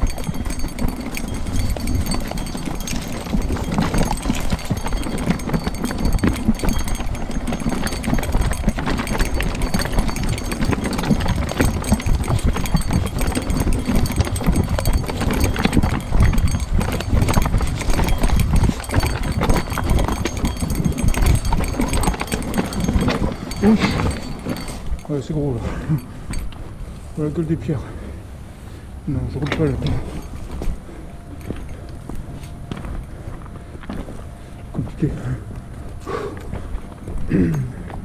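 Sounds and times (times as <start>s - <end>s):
bike tyres rattling over stones: 0.0s - 26.7s
bike rattling over bumps: 0.0s - 27.1s, 29.2s - 34.5s.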